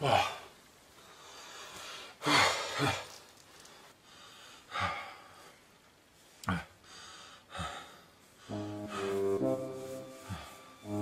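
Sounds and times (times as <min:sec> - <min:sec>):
man gasping and breathing hard: 0:01.1 - 0:05.6, 0:06.4 - 0:09.4.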